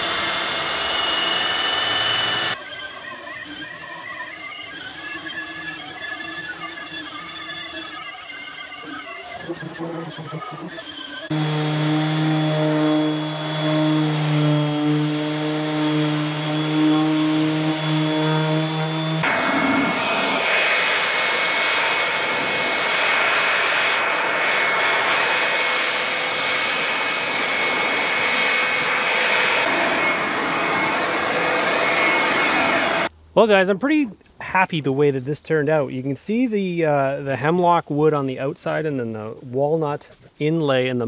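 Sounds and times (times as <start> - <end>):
belt sander motor hum: 0.0 - 2.6, 11.3 - 33.1
rushing whoosh with high whine: 14.9 - 33.1.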